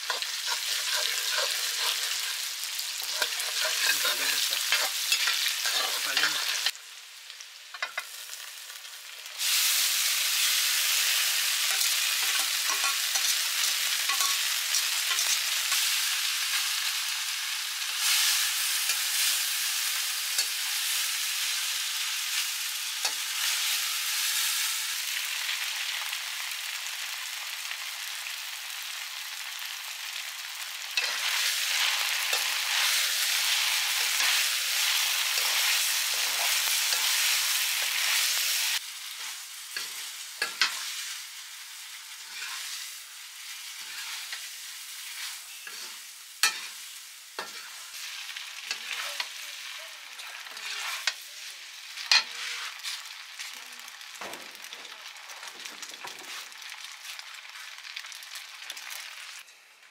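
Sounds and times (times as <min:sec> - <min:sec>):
spoon scraping pan: 0:00.0 - 0:06.7, 0:11.6 - 0:15.4, 0:31.0 - 0:38.6, 0:39.2 - 0:41.1, 0:42.1 - 0:42.8, 0:43.6 - 0:46.8, 0:47.4 - 0:48.1, 0:48.7 - 0:51.2, 0:52.0 - 0:53.1
food sizzling in hot oil: 0:00.0 - 0:59.9.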